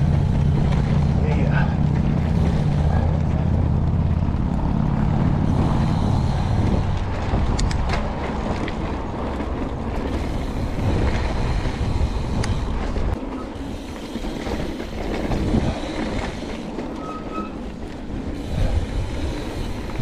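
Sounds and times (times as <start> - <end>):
sharp clicks and rattles: 0.0 - 13.3
tyres rolling on dirt: 0.0 - 20.0
wind buffeting microphone: 0.0 - 20.0.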